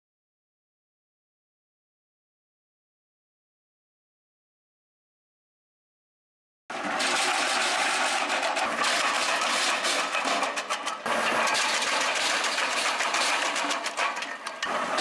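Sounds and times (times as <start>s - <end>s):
tractor engine running: 6.7s - 15.0s
wood chipper grinding branches: 6.7s - 15.0s.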